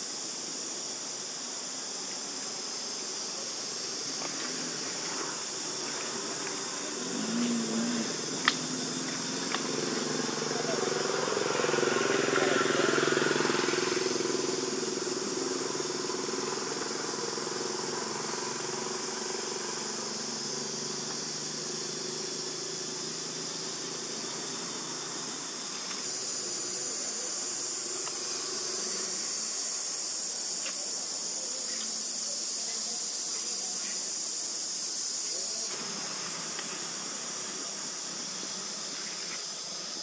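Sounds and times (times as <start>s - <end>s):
insects droning: 0.0s - 40.0s
distant motor engine: 4.1s - 29.7s.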